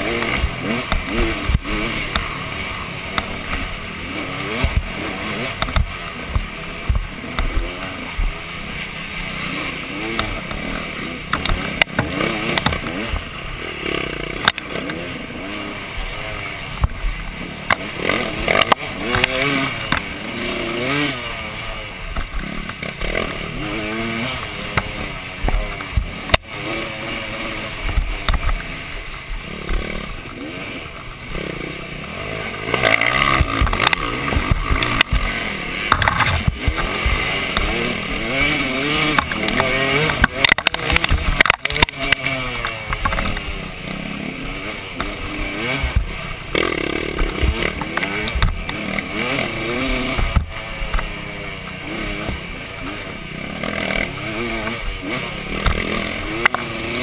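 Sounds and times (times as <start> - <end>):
dirt bike engine revving: 0.0 - 57.0
bike knocks and rattles: 4.4 - 7.8, 11.3 - 13.3, 32.8 - 43.5.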